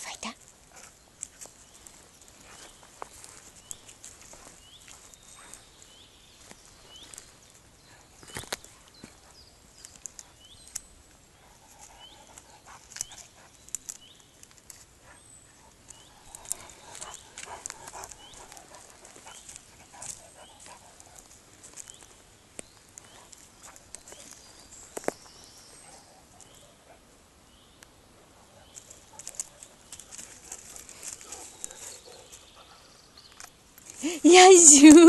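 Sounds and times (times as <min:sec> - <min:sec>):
twigs crackling under paws: 0:00.0 - 0:26.7, 0:28.6 - 0:32.5, 0:33.3 - 0:35.0
dog sniffing: 0:15.0 - 0:21.6.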